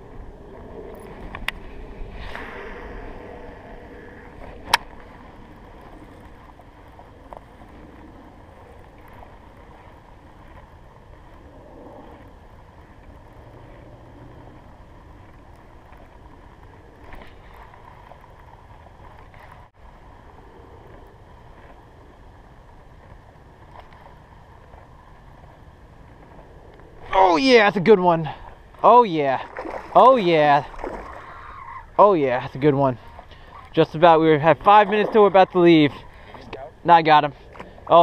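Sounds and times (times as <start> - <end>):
wind noise on microphone: 0.0 - 24.7.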